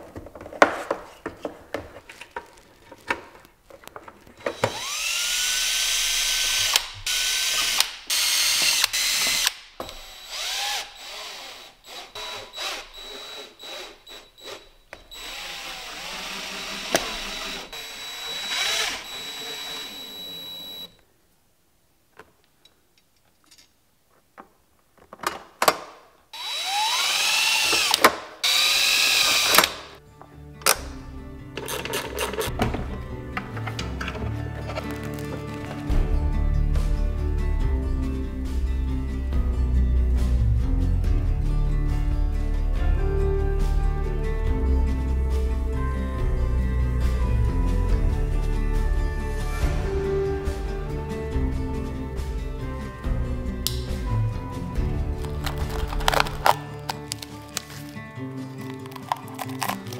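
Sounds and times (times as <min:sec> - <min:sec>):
handling clicks and knocks: 0:00.0 - 0:04.7, 0:22.1 - 0:26.0, 0:31.5 - 0:35.9, 0:55.1 - 0:58.0
cordless drill whining: 0:04.4 - 0:21.0, 0:26.4 - 0:30.0.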